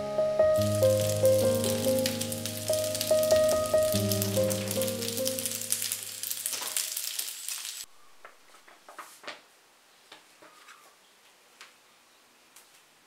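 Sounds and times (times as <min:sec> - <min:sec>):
pasta sizzling in a pan: 0:00.6 - 0:07.9.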